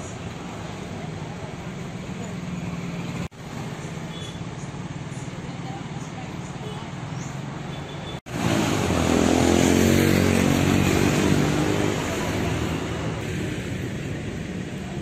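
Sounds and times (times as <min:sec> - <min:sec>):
motorbike engines: 0:00.0 - 0:15.0
engine passing close by: 0:08.3 - 0:15.0.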